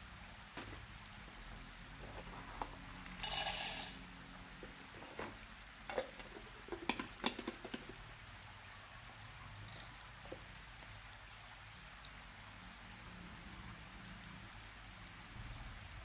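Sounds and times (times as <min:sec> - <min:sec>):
peanuts poured into plastic bowl: 0:02.7 - 0:04.0.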